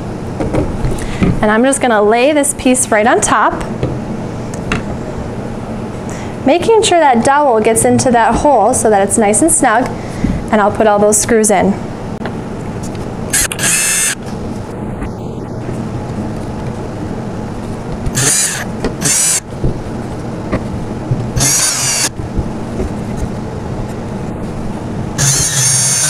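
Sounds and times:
cordless drill driving screws: 13.4s - 14.2s, 18.2s - 19.4s, 21.4s - 22.1s, 25.2s - 26.0s.

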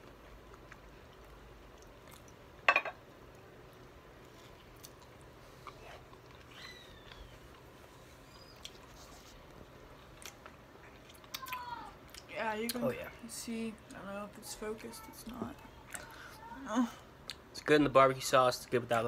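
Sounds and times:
person chewing food: 0.0s - 12.8s.

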